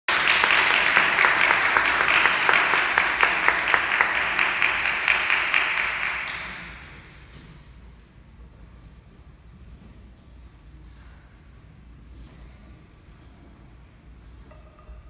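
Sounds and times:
audience applauding: 0:00.1 - 0:06.8
sharp close claps: 0:00.1 - 0:06.9.

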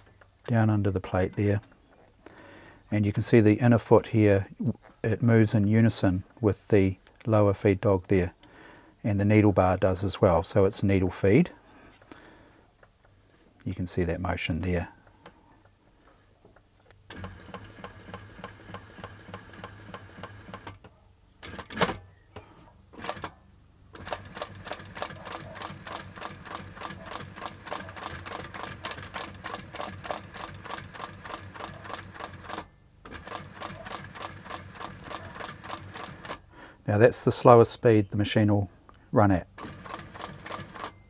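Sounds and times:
sewing machine stitching: 0:17.1 - 0:20.8, 0:21.4 - 0:22.0, 0:23.0 - 0:23.4, 0:24.0 - 0:36.4, 0:39.6 - 0:41.0.

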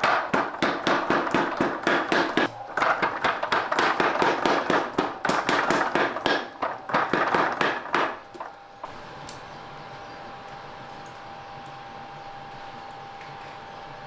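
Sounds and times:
power hammer pounding iron: 0:00.0 - 0:08.2
air blower hum and whine: 0:00.0 - 0:14.0.

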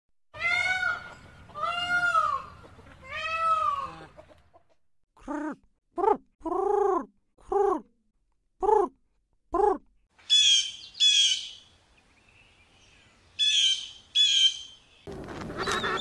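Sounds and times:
peafowl wailing calls: 0:15.5 - 0:16.0.

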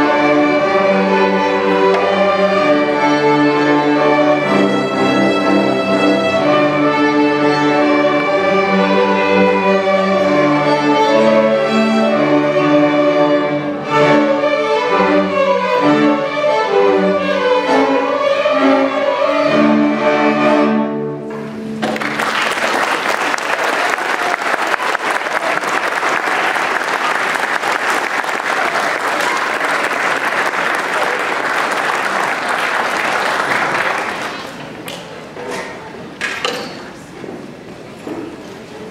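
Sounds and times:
string orchestra playing: 0:00.0 - 0:22.3
audience applause: 0:21.8 - 0:34.9.

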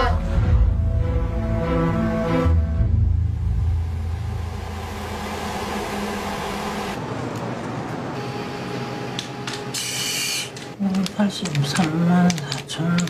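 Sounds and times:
paper receipts rustling: 0:10.4 - 0:13.0
calculator keys clicking: 0:10.6 - 0:13.0.

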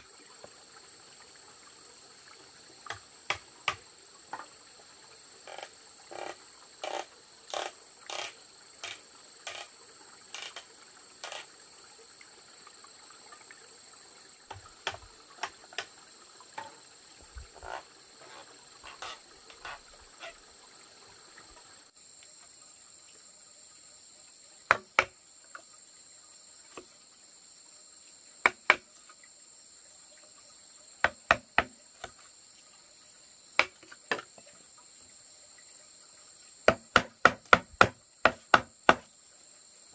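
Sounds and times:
insects droning: 0:00.0 - 0:39.9
knife chopping bamboo: 0:24.7 - 0:25.1, 0:28.4 - 0:28.8, 0:31.0 - 0:32.1, 0:33.6 - 0:34.2, 0:36.7 - 0:39.1.

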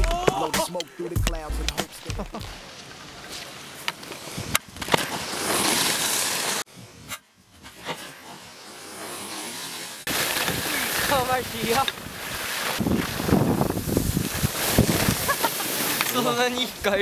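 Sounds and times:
sharp ski clacks: 0:00.0 - 0:02.7
skis scraping on snow: 0:01.9 - 0:17.0.

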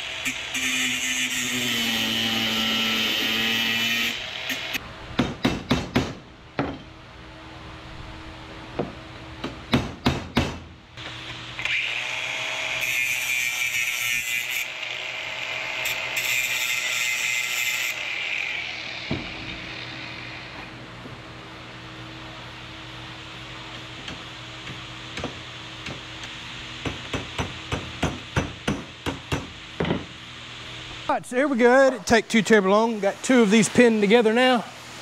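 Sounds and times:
angle grinder grinding metal: 0:00.0 - 0:04.8, 0:11.6 - 0:20.5.

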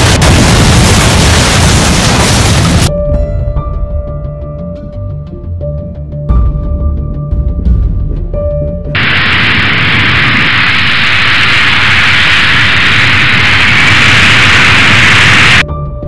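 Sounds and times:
music: 0:02.9 - 0:09.0, 0:15.6 - 0:16.0
loud rushing hiss: 0:09.0 - 0:15.6.

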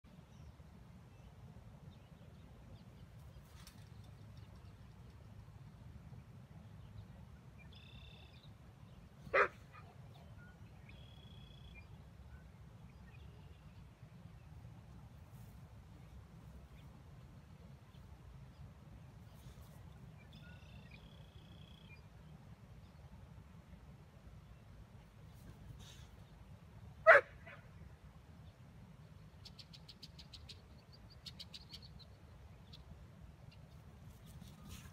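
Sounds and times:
dog barking: 0:09.3 - 0:10.0, 0:27.1 - 0:27.6.

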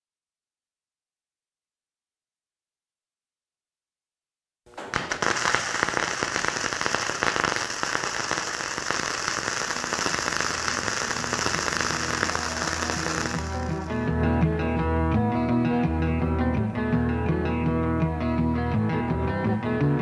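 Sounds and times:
welding arc crackling: 0:04.7 - 0:14.0
guitar music: 0:09.5 - 0:20.0.

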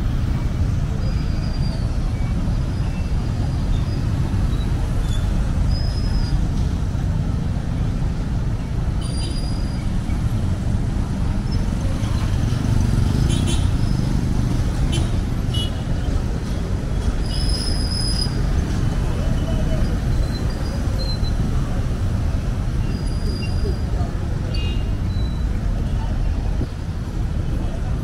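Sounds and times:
motorcycles and cars passing: 0:06.4 - 0:17.4.

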